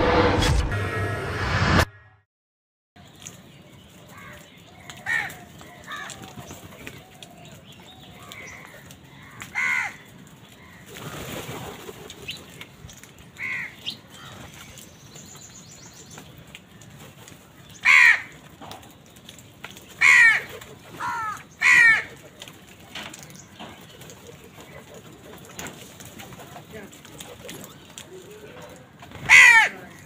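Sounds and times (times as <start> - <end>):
crows cawing: 4.1 - 7.4, 8.2 - 11.5, 13.4 - 14.5, 17.8 - 18.6, 20.0 - 22.4, 28.8 - 30.0.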